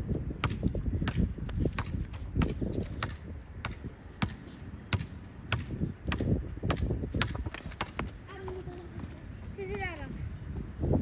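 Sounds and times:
basketball bouncing on court: 0:00.4 - 0:08.8.

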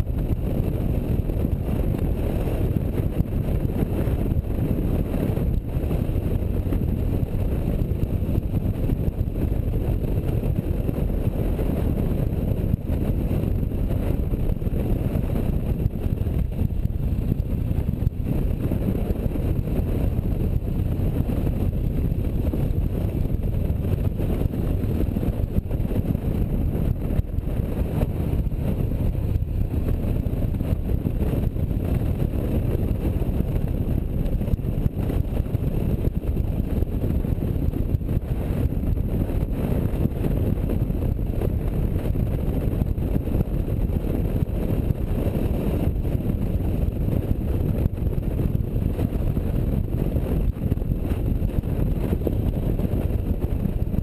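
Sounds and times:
motorcycle engine and road roar: 0:00.0 - 0:54.0
wind buffeting microphone: 0:00.0 - 0:54.0.

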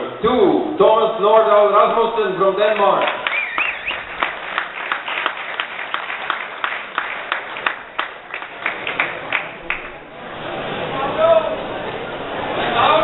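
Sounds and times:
separate hand claps: 0:02.8 - 0:10.0
audience applause: 0:02.9 - 0:11.0.

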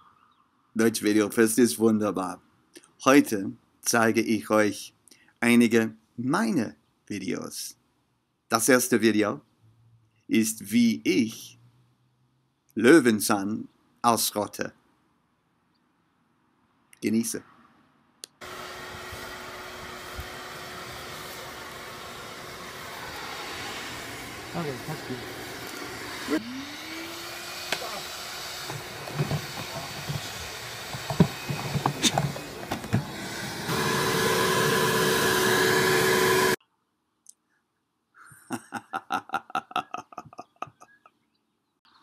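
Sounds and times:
shop vacuum rushing air: 0:18.4 - 0:36.6
man laughing heartily: 0:38.2 - 0:41.2.

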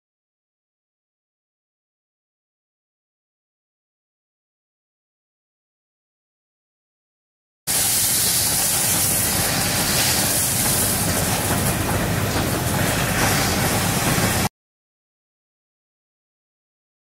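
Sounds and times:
machinery hissing: 0:07.7 - 0:14.5.

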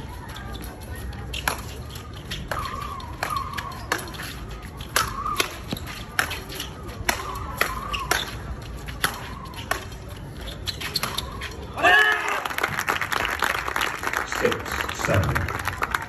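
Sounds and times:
shoe squeaks: 0:00.0 - 0:11.8
rackets smacking ball: 0:01.4 - 0:10.2.

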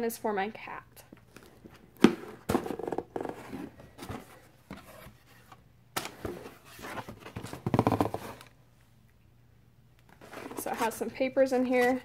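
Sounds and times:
box bump: 0:02.0 - 0:05.1, 0:06.0 - 0:08.5
cardboard box being handled: 0:10.2 - 0:11.0.

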